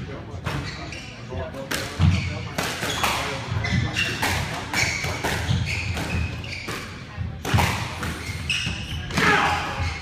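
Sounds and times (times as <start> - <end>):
squash ball hitting racquets and walls: 1.6 - 10.0
shoes squeaking on wooden floor: 2.0 - 7.1, 8.2 - 10.0.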